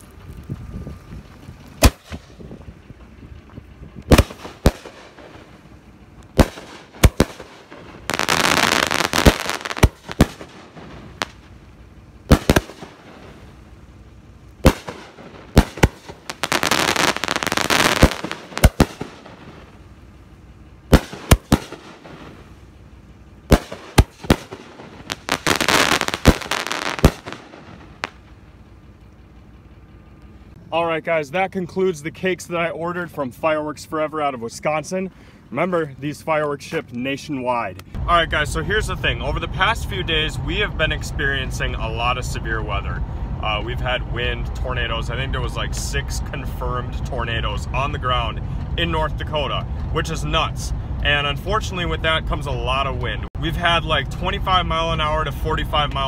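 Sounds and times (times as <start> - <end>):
firework reports: 1.0 - 20.1, 20.7 - 28.8, 37.9 - 56.0
firework crackling: 1.8 - 2.3, 4.1 - 5.7, 6.4 - 11.6, 12.2 - 13.8, 14.6 - 19.8, 20.9 - 22.6, 23.5 - 28.4.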